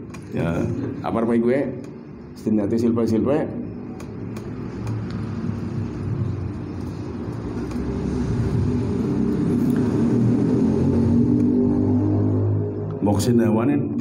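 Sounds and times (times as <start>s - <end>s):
vehicle engine rumble: 3.9s - 13.0s.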